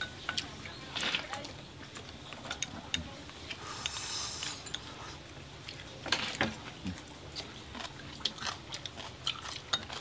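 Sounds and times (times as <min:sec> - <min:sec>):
chewing mouth sounds: 0:06.7 - 0:10.0.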